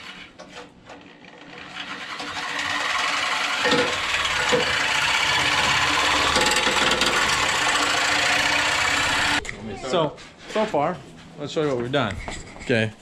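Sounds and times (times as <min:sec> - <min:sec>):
reciprocating saw cutting metal pipe: 0:01.3 - 0:09.4.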